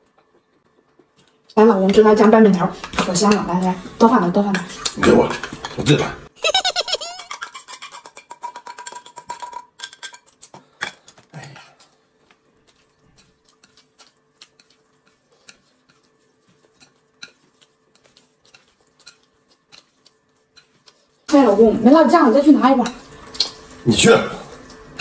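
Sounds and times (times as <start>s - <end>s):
chopsticks tapping on a plate: 12.2s - 21.0s.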